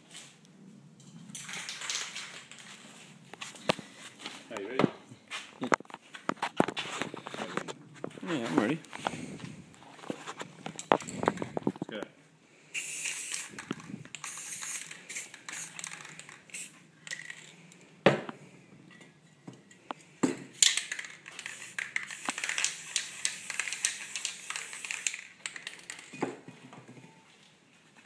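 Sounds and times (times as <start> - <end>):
spray paint can hissing: 12.7 - 17.5, 20.6 - 26.1.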